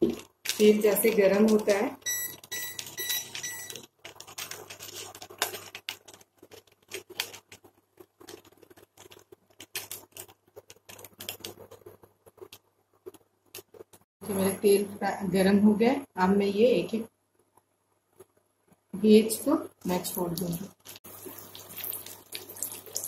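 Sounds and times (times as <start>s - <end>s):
oil crackling and popping: 0.0s - 14.1s, 19.8s - 23.0s
short electronic beeps: 2.1s - 3.8s.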